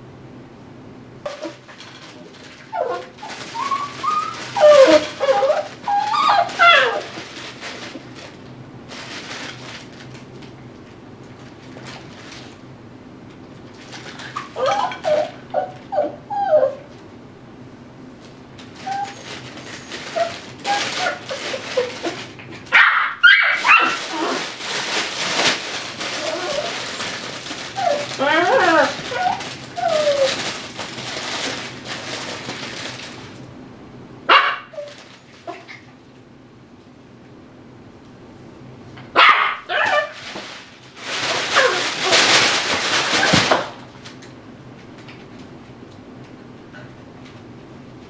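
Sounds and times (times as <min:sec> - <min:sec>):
puppy whining: 0:01.3 - 0:01.7, 0:02.5 - 0:07.2, 0:14.0 - 0:17.0, 0:18.7 - 0:24.6, 0:26.0 - 0:30.5, 0:34.6 - 0:35.9, 0:39.3 - 0:40.2, 0:41.5 - 0:42.3
rustling: 0:01.3 - 0:10.6, 0:11.2 - 0:12.6, 0:18.2 - 0:33.5, 0:39.7 - 0:44.2
high-pitched yips: 0:22.7 - 0:24.4
puppy barking: 0:22.7 - 0:24.4, 0:34.3 - 0:34.9, 0:39.1 - 0:40.2.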